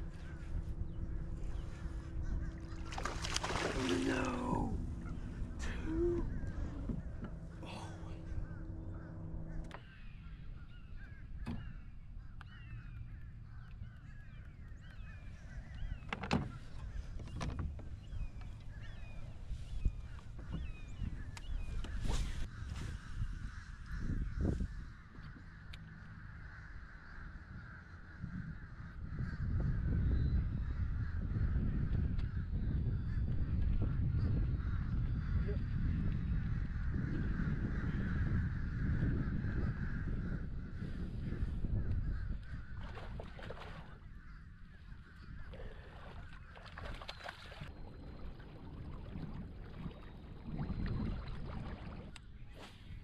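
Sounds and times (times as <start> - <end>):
water lapping against hull: 0.0 - 9.7, 41.6 - 53.0
bird calls: 0.0 - 52.8
wind buffeting microphone: 0.0 - 53.0.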